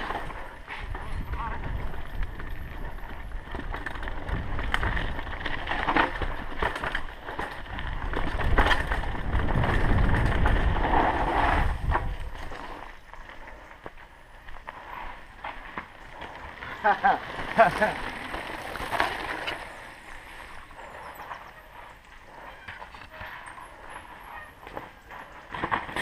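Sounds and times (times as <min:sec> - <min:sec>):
bike rattling on bumps: 0:00.0 - 0:26.0
tyres rumbling over dirt: 0:00.0 - 0:26.0
wind rushing on microphone: 0:00.7 - 0:05.4, 0:07.7 - 0:12.8.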